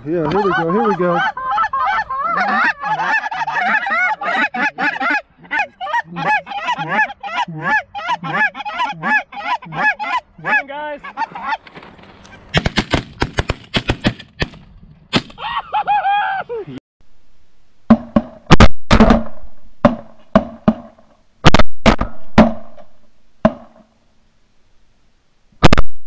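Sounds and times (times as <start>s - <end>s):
geese honking: 0.2s - 12.5s
shotgun shots: 12.5s - 15.4s.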